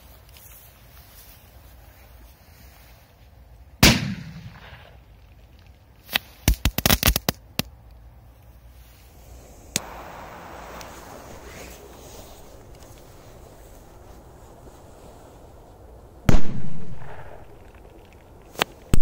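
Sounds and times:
firecracker crackling: 6.0s - 7.4s, 9.1s - 14.6s
small pop: 9.7s - 9.9s
firecracker bang: 9.7s - 11.6s.

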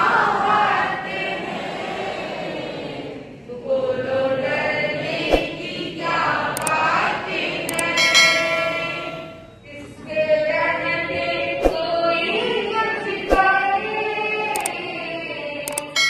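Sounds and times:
voices singing devotional song: 0.0s - 16.0s
short sharp clicks: 6.6s - 6.8s, 7.7s - 8.0s, 14.6s - 14.8s, 15.7s - 16.0s.

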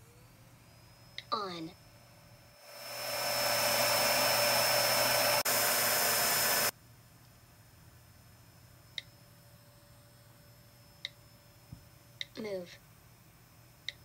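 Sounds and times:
vacuum cleaner motor running: 2.6s - 6.7s.

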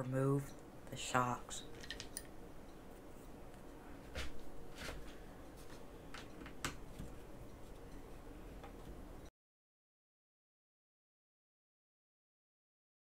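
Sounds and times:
light clicks and taps of tools: 1.8s - 2.4s.

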